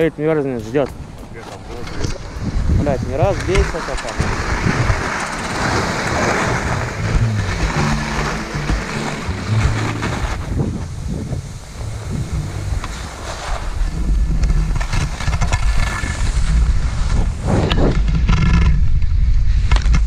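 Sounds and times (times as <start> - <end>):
wind buffeting microphone: 0.0 - 20.0
skis scraping on snow: 0.6 - 17.7
loud low rumble: 5.6 - 14.5.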